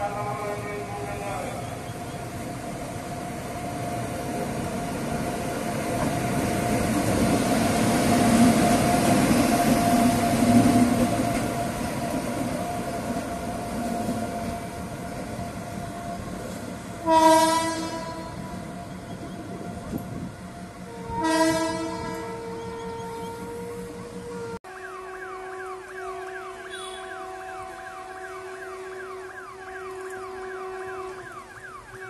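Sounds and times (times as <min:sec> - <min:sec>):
electric locomotive passing: 0:00.0 - 0:32.0
locomotive horn blast: 0:17.0 - 0:20.0, 0:20.8 - 0:32.0.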